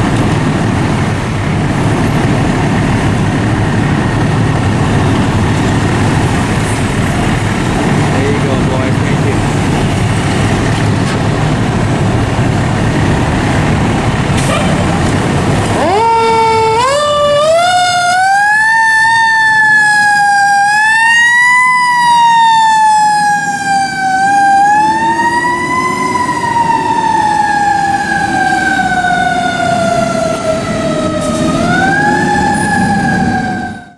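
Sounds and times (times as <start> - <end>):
truck engine running: 0.0 - 17.6
fire engine siren wailing: 0.0 - 33.9.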